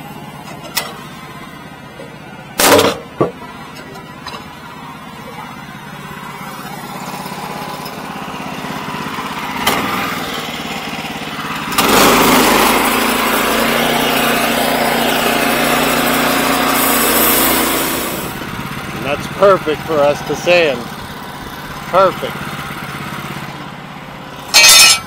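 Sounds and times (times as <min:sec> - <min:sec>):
sawmill engine running: 0:00.0 - 0:25.0
blade sawing timber: 0:11.6 - 0:18.4, 0:24.4 - 0:25.0.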